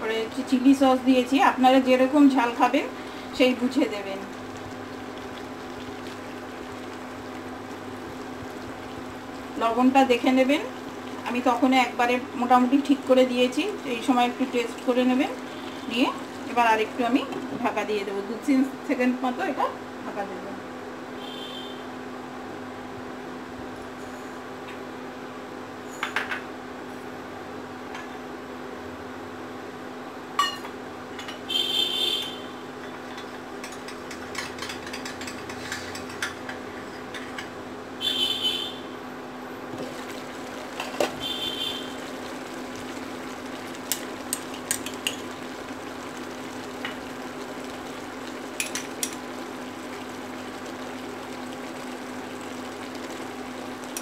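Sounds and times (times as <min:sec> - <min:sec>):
cooktop humming: 0:00.0 - 0:20.3, 0:30.2 - 0:54.0
pan simmering ticks: 0:03.7 - 0:11.7, 0:33.6 - 0:36.7, 0:39.9 - 0:54.0.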